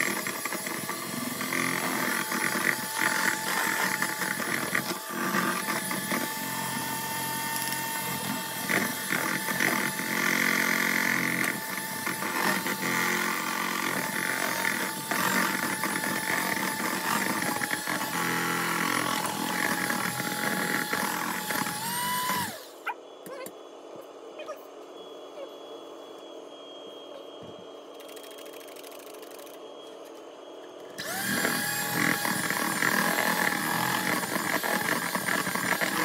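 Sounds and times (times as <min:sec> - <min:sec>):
hand mixer whisking batter: 0:00.0 - 0:22.6, 0:31.0 - 0:36.0.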